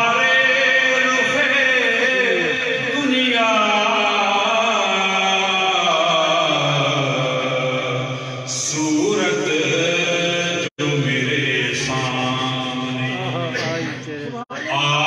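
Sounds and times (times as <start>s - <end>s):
man reciting a devotional poem: 0.0s - 15.0s.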